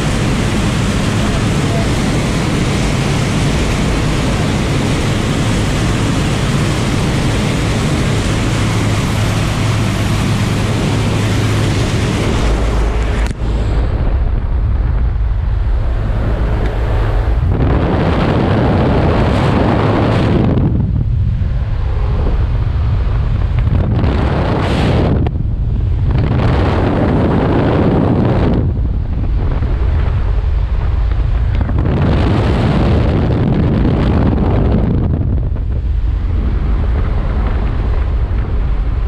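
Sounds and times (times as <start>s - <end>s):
plane engine and propeller drone: 0.0s - 39.0s
wind buffeting microphone: 0.0s - 39.0s.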